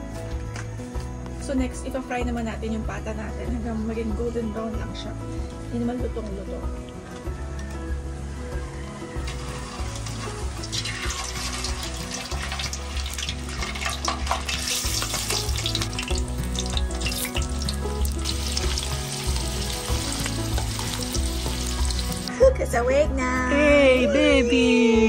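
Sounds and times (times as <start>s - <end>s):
meat sizzling in hot oil: 9.2s - 22.3s.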